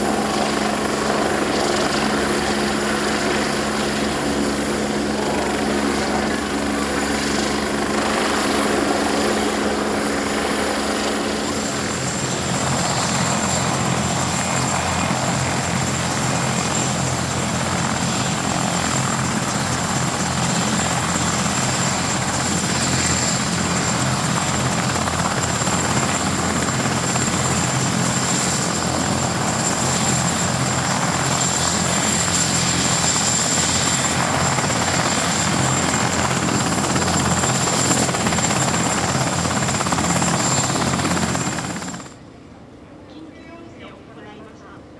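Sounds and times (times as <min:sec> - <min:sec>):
helicopter rotor and turbine whine: 0:00.0 - 0:44.6
helicopter hovering overhead: 0:00.0 - 0:44.9.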